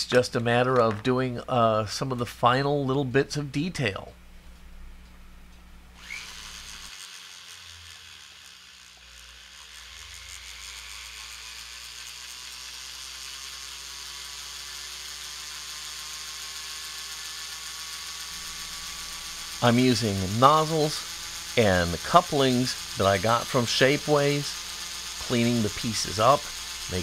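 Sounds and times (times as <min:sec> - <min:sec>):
rotary tool grinding: 0:06.0 - 0:27.0.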